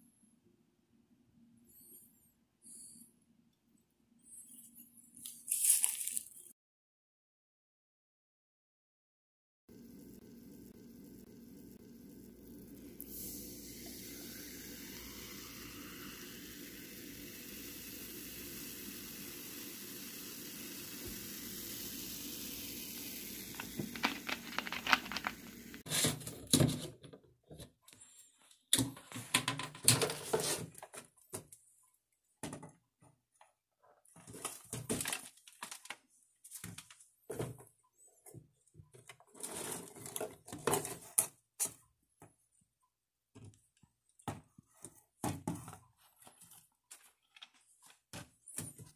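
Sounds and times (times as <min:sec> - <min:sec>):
fizz clicks and crackles: 0:09.7 - 0:25.9
cola fizzing pour: 0:09.9 - 0:25.8.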